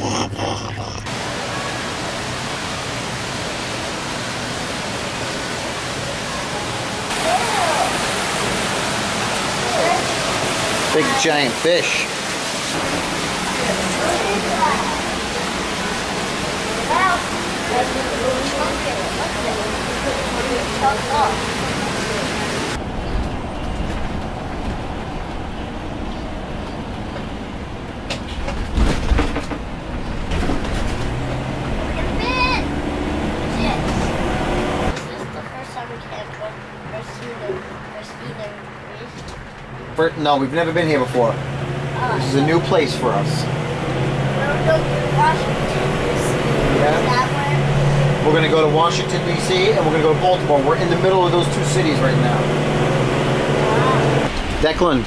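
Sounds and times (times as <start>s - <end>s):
waterfall rushing: 0.0s - 22.8s, 31.0s - 35.0s, 40.8s - 55.0s
engine and road rumble: 0.0s - 55.0s
knocks and rattles: 28.1s - 31.2s.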